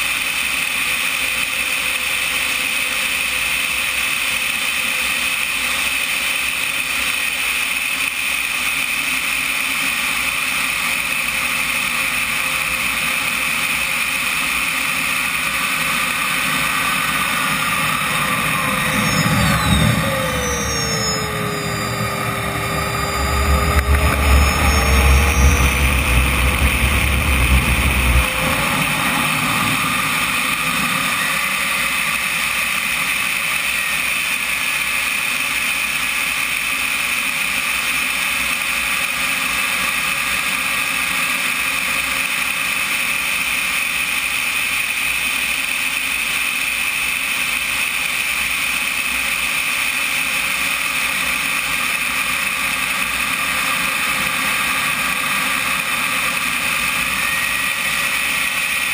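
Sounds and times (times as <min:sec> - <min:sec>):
jet turbine whine: 0:00.0 - 0:58.9
air rushing over camera: 0:15.8 - 0:31.7
low wind rumble: 0:16.7 - 0:31.7.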